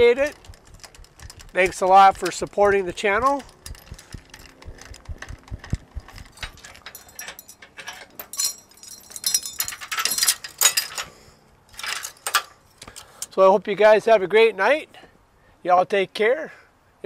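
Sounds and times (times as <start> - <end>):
metal hardware clinking and rattling: 0.0 - 13.3.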